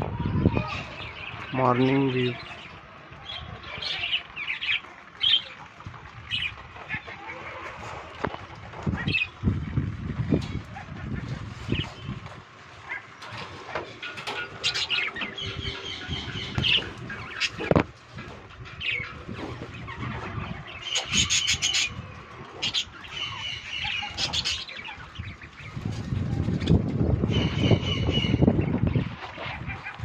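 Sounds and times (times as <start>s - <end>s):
wings fluttering: 3.4s - 27.6s
budgerigars chirping: 12.8s - 25.8s, 27.3s - 30.0s.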